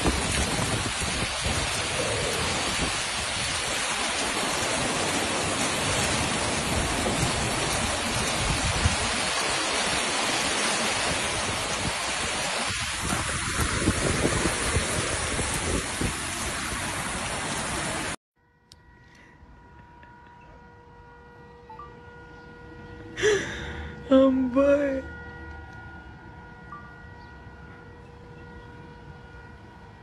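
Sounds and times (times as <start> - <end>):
heavy rain pouring: 0.0 - 18.2.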